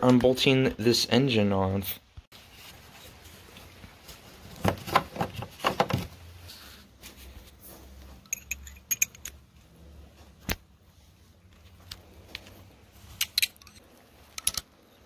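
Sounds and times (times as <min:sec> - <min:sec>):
metal sockets clinking: 0:08.2 - 0:09.4, 0:13.2 - 0:14.8.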